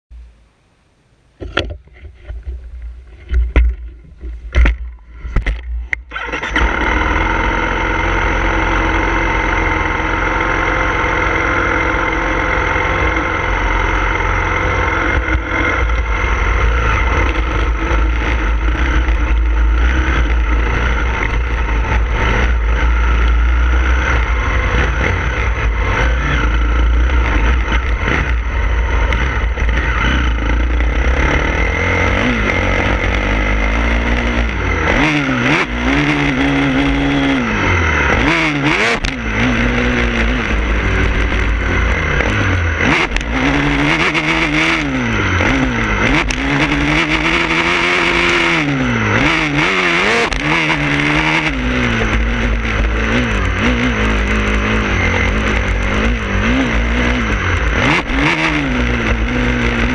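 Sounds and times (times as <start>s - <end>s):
sharp knocks and clatters: 1.4s - 5.8s
motorcycle engine running: 1.4s - 59.9s.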